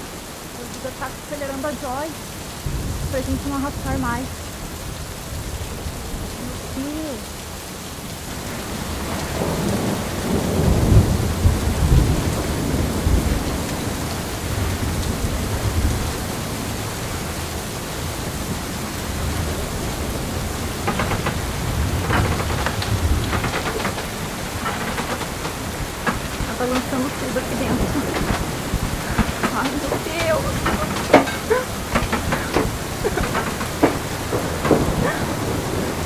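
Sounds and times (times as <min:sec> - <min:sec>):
heavy rain: 0:00.0 - 0:36.0
strong wind: 0:00.0 - 0:36.0
thunder rumbling: 0:00.0 - 0:36.0
sharp cracks and taps: 0:20.7 - 0:35.2.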